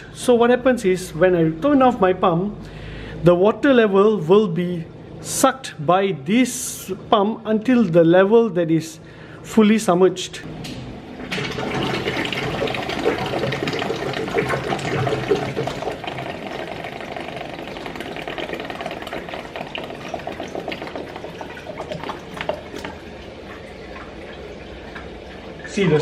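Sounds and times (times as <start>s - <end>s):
water gurgling and slurping in pipe: 11.3s - 25.8s.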